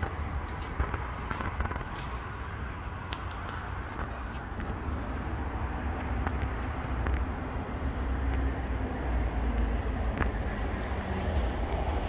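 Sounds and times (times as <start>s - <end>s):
train rumble: 0.0s - 12.0s
high wheel squeal: 8.8s - 9.6s, 10.9s - 12.0s.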